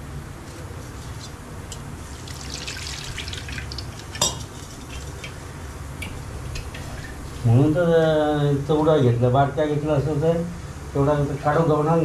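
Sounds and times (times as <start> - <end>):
liquid pouring into pot: 2.0 - 5.4.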